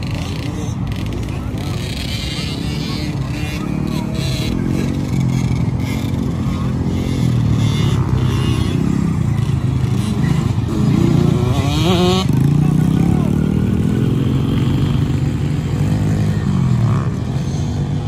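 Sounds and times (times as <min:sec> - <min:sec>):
dirt bike engines: 0:00.0 - 0:18.0.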